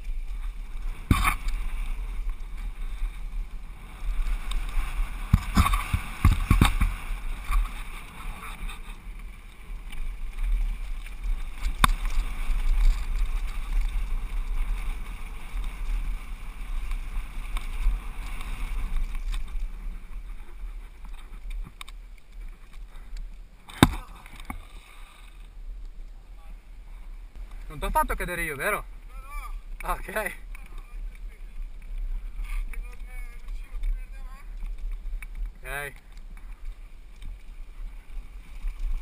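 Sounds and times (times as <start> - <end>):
wind rumble on microphone: 0.0 - 24.7
bike rattling: 0.0 - 26.4, 27.0 - 39.0.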